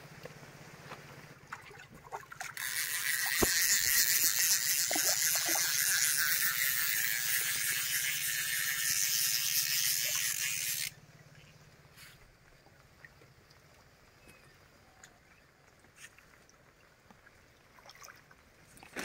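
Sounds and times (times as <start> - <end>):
fishing reel ratcheting: 2.4 - 11.0.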